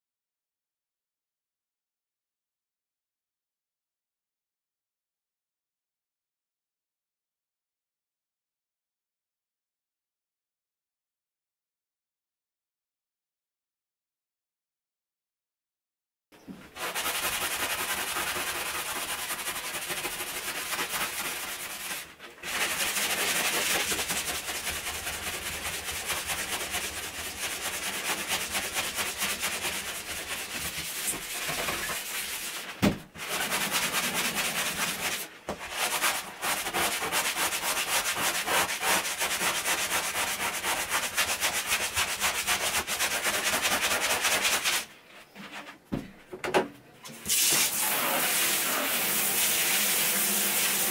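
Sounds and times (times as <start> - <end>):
sponge scrubbing bathtub: 16.6 - 45.8, 47.1 - 50.9.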